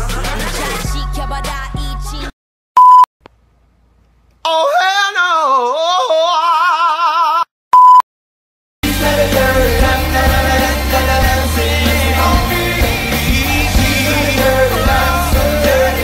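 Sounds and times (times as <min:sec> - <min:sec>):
high test-tone beep: 0:02.8 - 0:03.1, 0:07.8 - 0:08.0
person singing with vibrato: 0:08.8 - 0:16.0.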